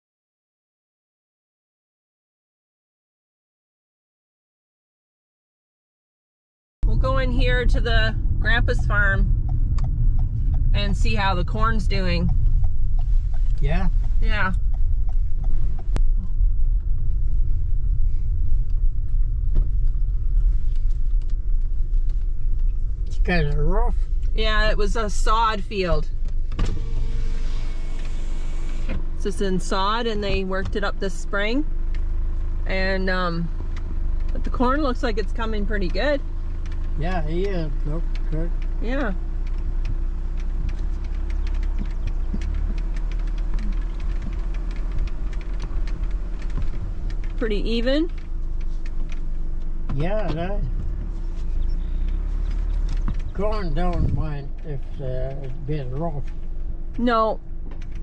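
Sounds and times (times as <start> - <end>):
car cabin rumble on bumpy road: 6.8 - 58.0
light clicks and rattles: 35.7 - 58.0.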